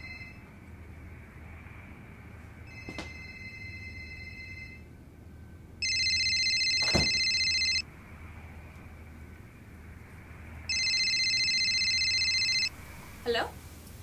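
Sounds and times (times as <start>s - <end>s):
electronic telephone ringing: 0.0s - 0.4s, 2.7s - 4.9s, 5.8s - 7.9s, 10.7s - 12.7s.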